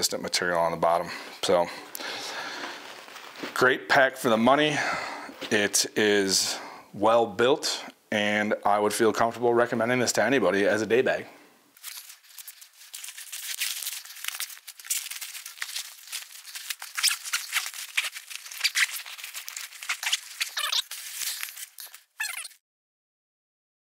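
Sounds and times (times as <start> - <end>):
fabric rustling and crinkling: 2.3 - 3.6, 11.7 - 22.2.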